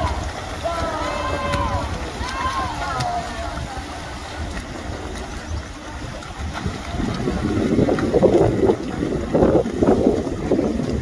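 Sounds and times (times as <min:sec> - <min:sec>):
swimmers splashing: 0:00.0 - 0:11.0
wind buffeting microphone: 0:00.0 - 0:11.0.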